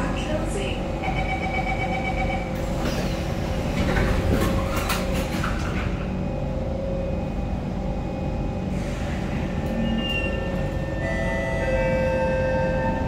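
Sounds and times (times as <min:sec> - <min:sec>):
metro train rumble: 0:00.0 - 0:13.0.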